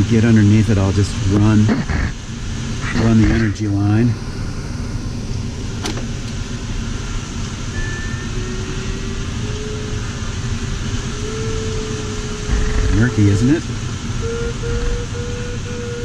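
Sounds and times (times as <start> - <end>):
faint steady tone: 6.7 - 16.0.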